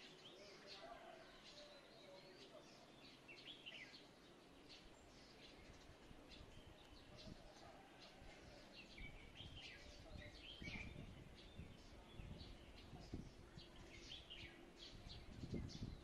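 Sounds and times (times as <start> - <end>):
songbirds chirping and twittering: 0.0 - 16.0.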